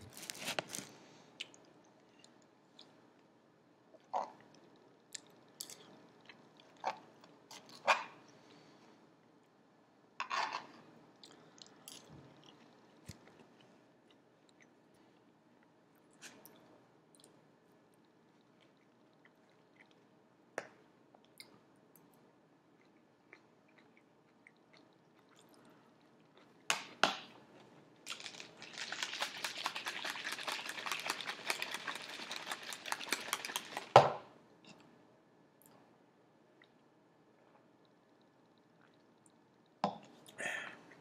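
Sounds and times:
fizzy drink pouring into cup: 0:28.1 - 0:34.1.

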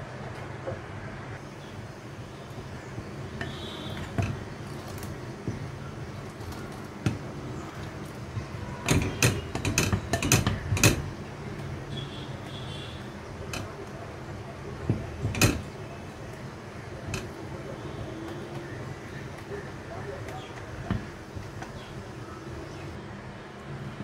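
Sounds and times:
spoon knocking and scraping pan: 0:03.4 - 0:11.2, 0:14.8 - 0:15.8, 0:20.6 - 0:22.0.

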